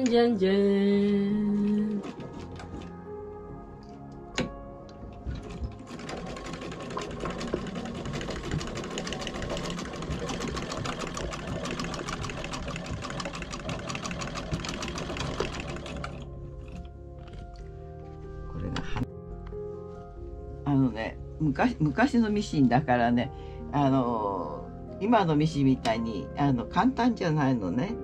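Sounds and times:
sewing machine stitching: 5.3 - 16.3.

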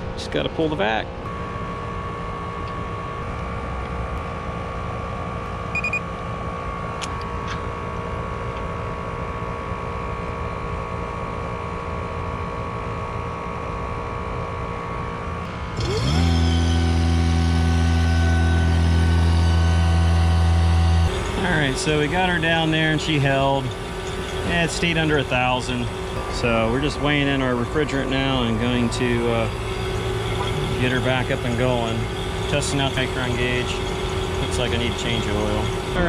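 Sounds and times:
steady mechanical hum: 0.0 - 36.0
short electronic beep: 5.7 - 6.0
electric motor whining: 15.4 - 36.0.

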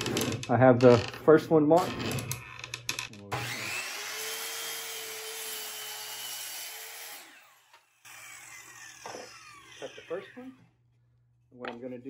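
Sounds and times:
miter saw cutting wood: 3.3 - 10.7.

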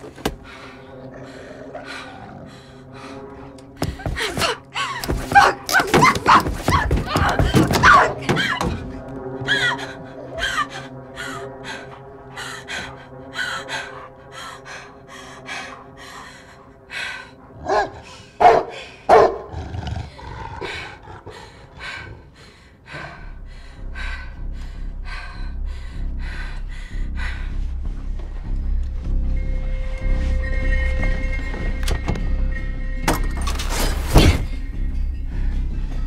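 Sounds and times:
dog barking fast: 5.4 - 6.8, 7.8 - 8.5, 17.7 - 19.5
low rumble: 21.8 - 36.0.

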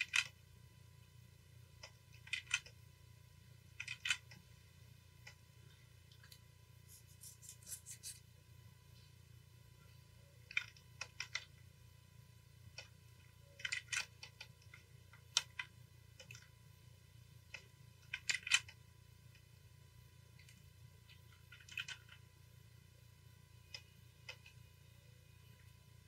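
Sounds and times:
computer mouse and key clicks: 0.0 - 0.4, 1.8 - 2.8, 3.7 - 4.5, 6.0 - 8.2, 10.4 - 11.6, 12.7 - 16.5, 17.4 - 19.5, 20.4 - 22.2, 23.6 - 25.7
low steady hum: 0.0 - 26.0.

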